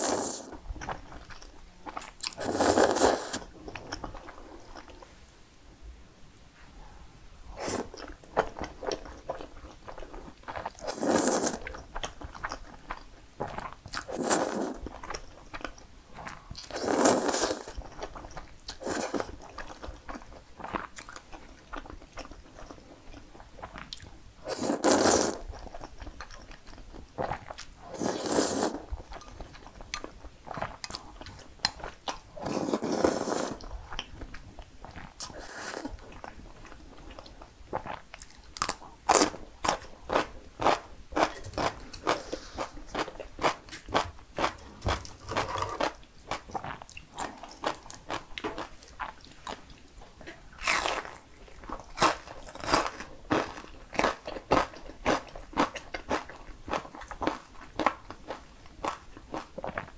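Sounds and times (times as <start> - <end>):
slurping noodles: 0.0 - 0.5, 2.4 - 3.5, 10.8 - 11.6, 14.1 - 14.8, 16.7 - 17.7, 24.5 - 25.4, 27.8 - 28.9, 32.4 - 33.7.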